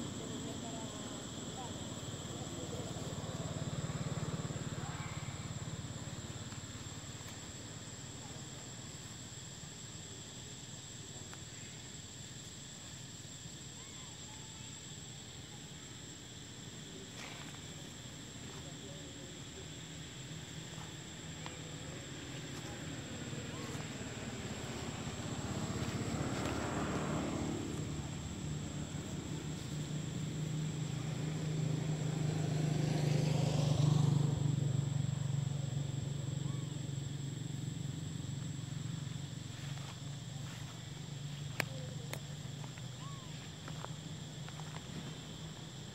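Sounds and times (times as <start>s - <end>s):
insects droning: 0.0s - 45.9s
vehicle engine passing: 22.9s - 36.2s.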